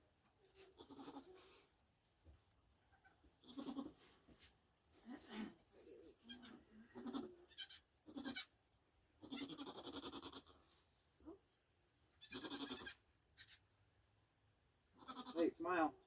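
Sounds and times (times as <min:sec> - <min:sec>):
goats bleating: 0:07.0 - 0:08.5, 0:09.2 - 0:10.5, 0:12.2 - 0:13.6, 0:15.0 - 0:15.4.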